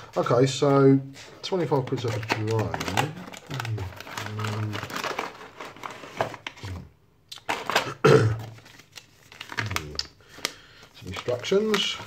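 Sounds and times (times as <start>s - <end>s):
paper manual rustling: 0.0s - 6.8s, 7.4s - 12.0s
cardboard packaging scraping: 1.5s - 6.8s.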